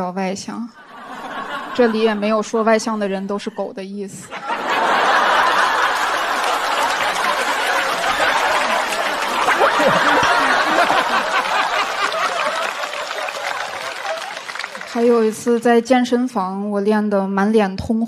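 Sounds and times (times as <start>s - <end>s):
audience laughing and clapping: 0.8s - 2.8s, 4.3s - 15.6s
individual laughs: 4.4s - 13.0s.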